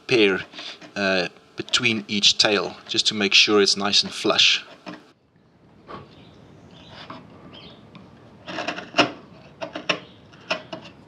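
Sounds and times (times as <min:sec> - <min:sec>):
chisel scraping wood: 0:00.4 - 0:01.9, 0:04.6 - 0:05.1, 0:06.8 - 0:07.7, 0:08.4 - 0:11.0.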